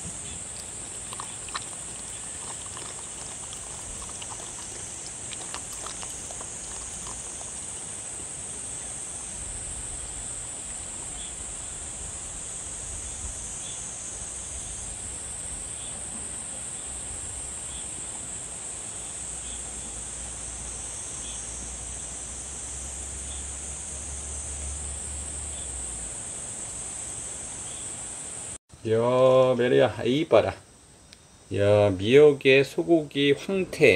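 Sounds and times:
insects chirring: 0.0s - 33.6s
dog eating clicks: 0.5s - 7.9s.

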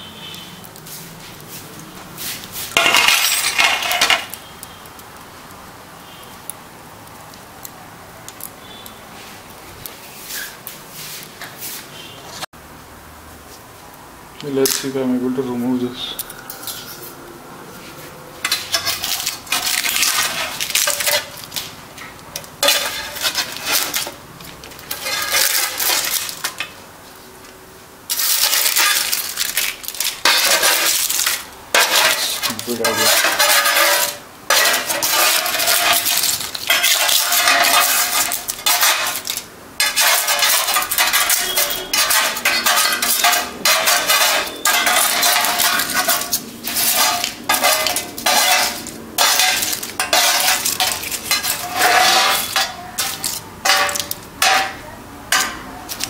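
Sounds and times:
utensil scraping an oven tray: 17.9s - 21.7s, 22.6s - 26.7s, 28.1s - 56.0s.

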